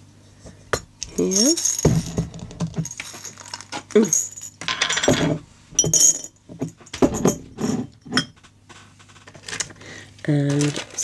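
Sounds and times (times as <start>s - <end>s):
beads clinking in glass jar: 1.0s - 5.2s, 5.8s - 6.4s.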